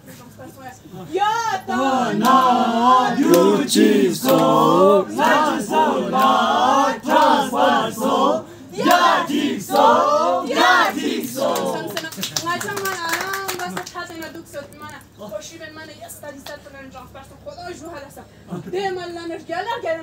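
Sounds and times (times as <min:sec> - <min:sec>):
group singing unaccompanied: 0:01.2 - 0:12.0.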